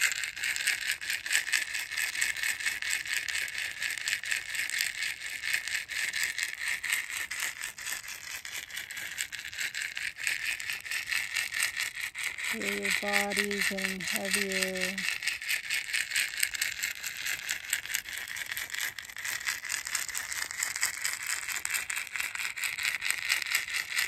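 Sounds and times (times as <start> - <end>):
basket rattle shaken: 7.0 - 15.2.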